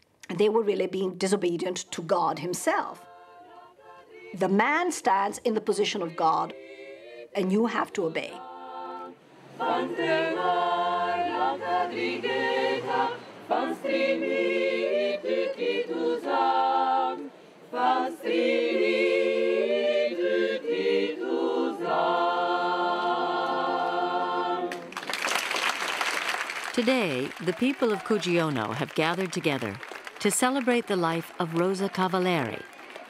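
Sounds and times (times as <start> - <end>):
choir singing unaccompanied: 2.8 - 24.9.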